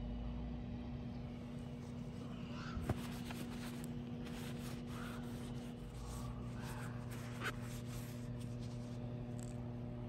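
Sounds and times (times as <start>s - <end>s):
steady low hum: 0.0s - 10.0s
paper towel rubbing and rustling: 2.8s - 9.1s.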